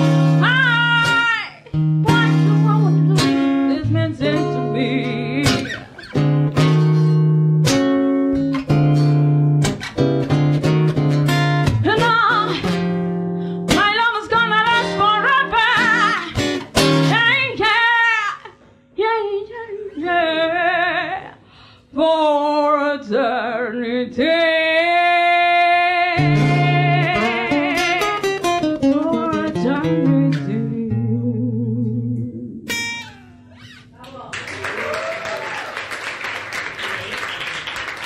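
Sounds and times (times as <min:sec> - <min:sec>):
woman singing blues: 0:00.0 - 0:06.0, 0:11.6 - 0:33.0
strummed acoustic guitar: 0:00.0 - 0:17.5, 0:26.2 - 0:31.2, 0:32.6 - 0:33.6.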